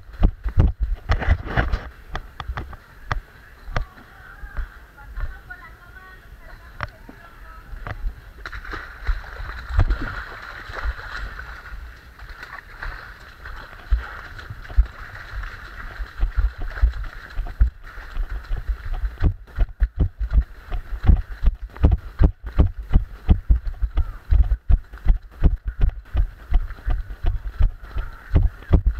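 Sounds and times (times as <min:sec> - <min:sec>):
feet splashing through mud: 0:08.4 - 0:28.9.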